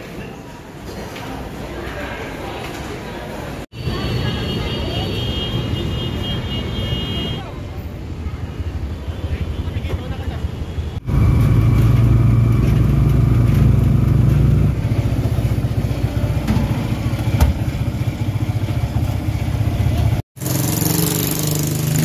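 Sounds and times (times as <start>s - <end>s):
street noise: 0.0s - 22.0s.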